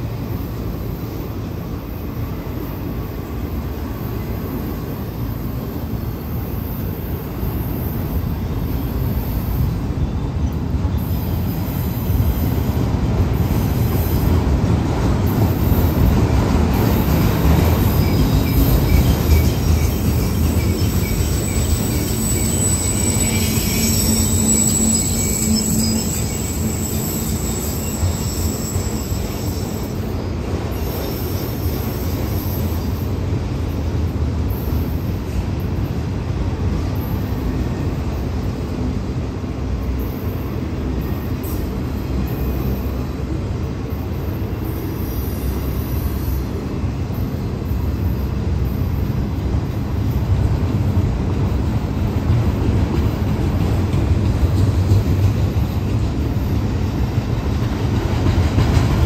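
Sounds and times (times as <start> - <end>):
train wheels rumbling on rails: 0.0 - 59.0
high wheel squeal: 17.8 - 33.2.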